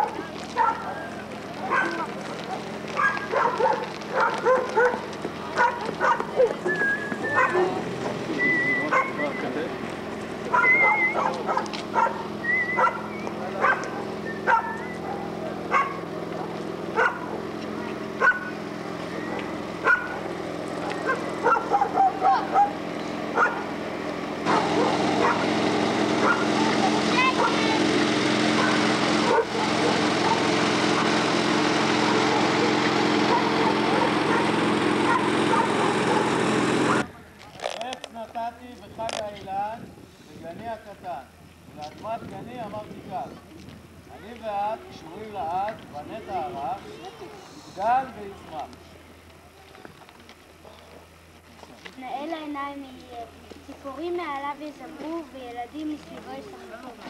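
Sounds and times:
dog barking: 0.0s - 1.1s, 1.7s - 6.6s, 7.3s - 7.8s, 8.9s - 9.2s, 10.5s - 17.4s, 18.2s - 18.5s, 19.8s - 20.2s, 21.0s - 22.8s, 23.4s - 23.7s, 24.5s - 25.4s, 26.2s - 26.5s, 27.4s - 27.6s, 28.6s - 31.1s, 32.0s - 37.1s
garden tractor engine running: 0.0s - 39.2s.

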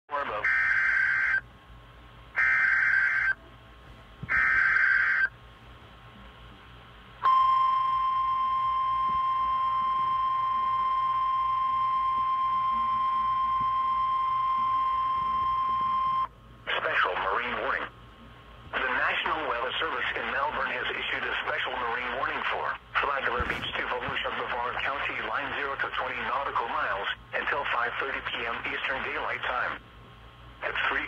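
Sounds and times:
steady warning alarm tone: 0.2s - 1.5s, 2.4s - 3.4s, 4.3s - 5.4s, 7.2s - 16.4s.

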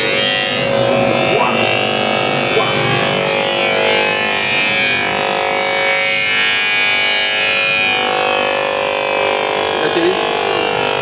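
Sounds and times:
loud electric buzz: 0.0s - 11.0s.

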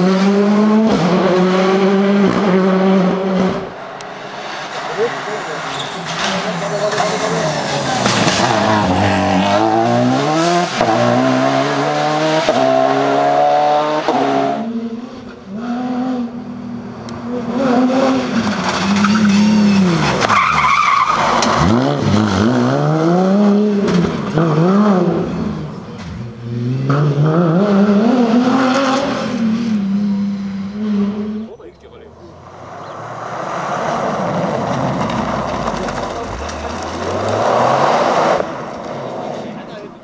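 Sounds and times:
rally car engine at full throttle: 0.0s - 40.0s
tyre squeal: 5.4s - 8.9s, 18.6s - 21.7s.

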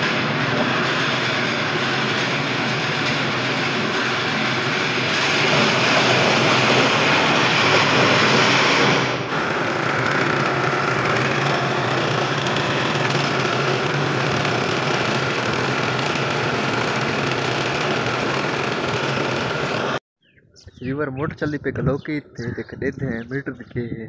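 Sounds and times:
floor grinding machine: 0.0s - 20.0s.

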